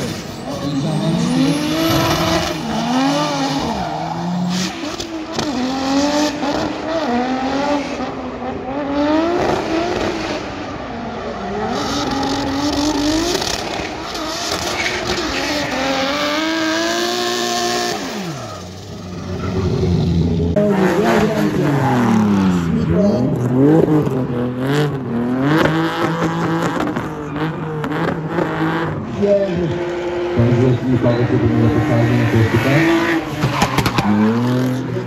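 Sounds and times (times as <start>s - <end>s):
tyre squeal: 0.0s - 4.9s
car engine revving: 0.0s - 35.0s.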